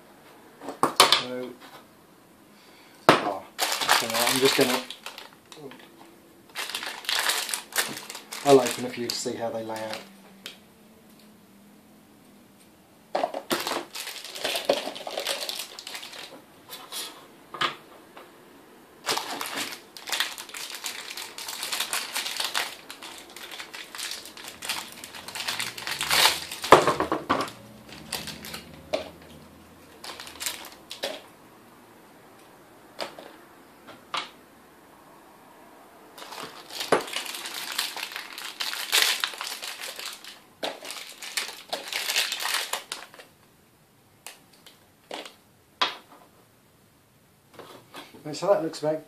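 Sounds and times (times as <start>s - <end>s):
plastic bags crinkling: 3.6s - 10.2s, 13.3s - 16.4s, 19.0s - 31.3s, 36.2s - 43.3s.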